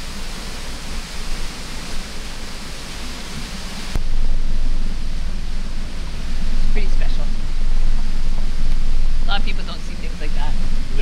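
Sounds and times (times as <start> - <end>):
rushing water hiss: 0.0 - 11.0
deep rumbling noise: 3.8 - 11.0.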